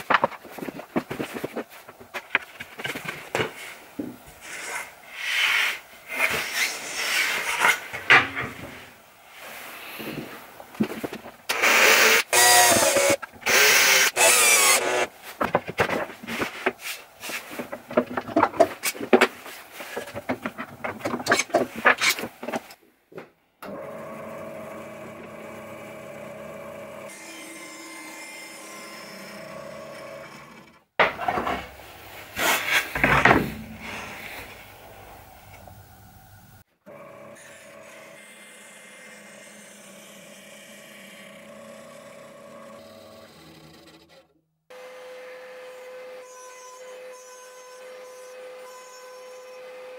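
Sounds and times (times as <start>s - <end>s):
scraping: 0.0s - 4.9s, 15.2s - 22.8s, 31.0s - 35.9s
bandsaw cutting plywood: 11.5s - 22.6s, 37.3s - 44.2s
wooden knocks: 33.0s - 34.3s.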